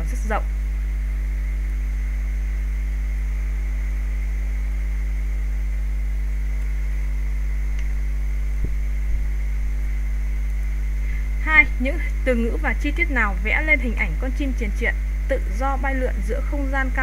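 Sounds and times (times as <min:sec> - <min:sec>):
electrical mains hum: 0:00.0 - 0:17.0
faint click: 0:07.7 - 0:08.0.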